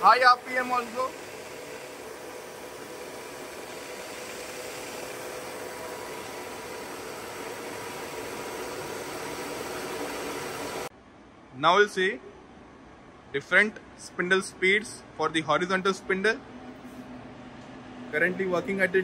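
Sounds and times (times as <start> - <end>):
milling machine spindle whirring: 0.0 - 10.9.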